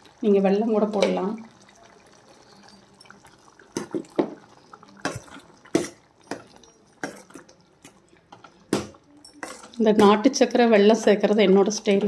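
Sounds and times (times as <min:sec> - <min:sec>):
ladle clinking against metal pot: 0:05.0 - 0:07.5, 0:08.3 - 0:10.2.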